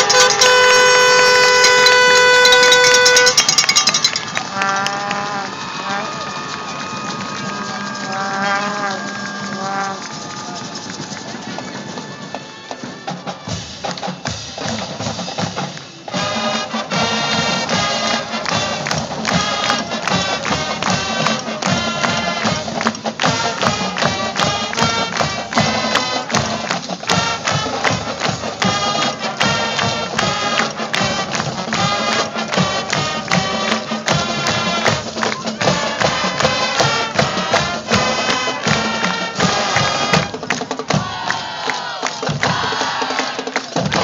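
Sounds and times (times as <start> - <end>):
horns holding chords: 0.0 - 12.2
marching band playing: 0.0 - 44.0
steady drum beat: 0.0 - 44.0.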